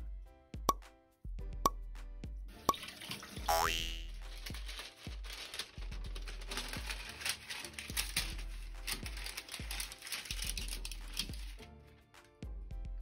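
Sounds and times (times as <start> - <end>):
parchment paper crinkling: 4.1 - 11.6.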